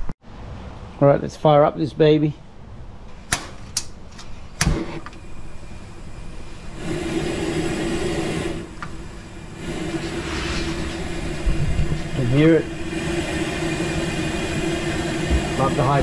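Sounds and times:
gas burner rushing: 3.2 - 16.0
low hum: 5.0 - 16.0.

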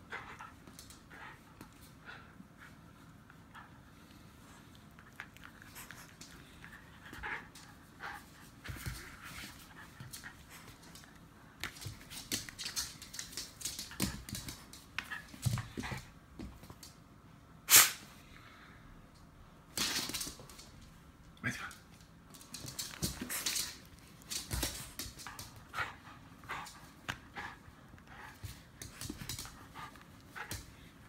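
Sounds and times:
dog scuffling: 5.6 - 16.9, 22.3 - 27.6, 28.2 - 30.8.

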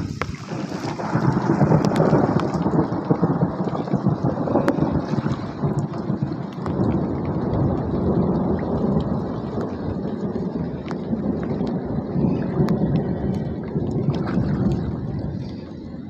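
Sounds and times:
rain falling on water: 0.0 - 16.0.

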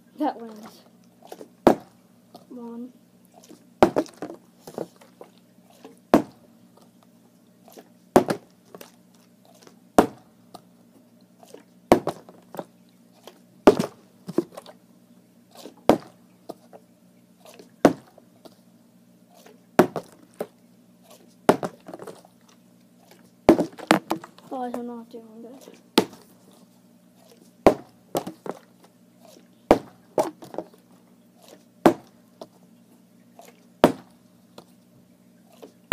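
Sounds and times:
plastic bottle landing thud: 1.6 - 1.9, 3.8 - 4.9, 6.1 - 6.4, 8.2 - 8.5, 10.0 - 10.2, 11.9 - 12.6, 13.7 - 14.5, 15.9 - 16.2, 17.8 - 18.1, 19.8 - 20.2, 21.5 - 22.2, 23.5 - 24.4, 26.0 - 26.3, 27.6 - 28.7, 29.7 - 30.7, 31.8 - 32.1, 33.8 - 34.1.

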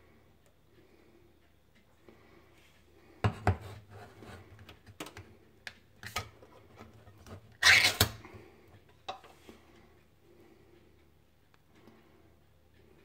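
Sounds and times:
metal can scraping rasp: 7.0 - 8.2.

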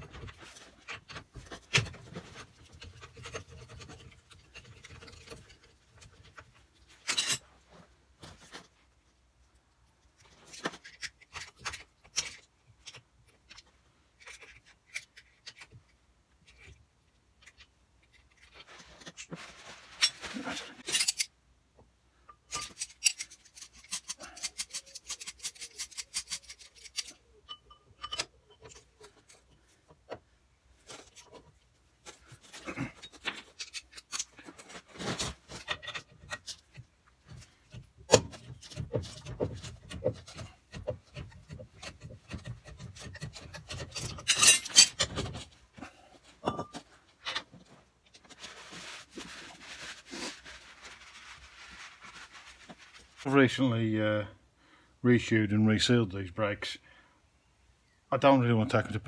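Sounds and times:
metal tool clinking and scraping: 0.0 - 7.6, 19.9 - 21.4, 22.2 - 29.5, 32.0 - 34.8, 35.5 - 45.5, 46.3 - 48.4
metal clatter: 38.1 - 45.5.

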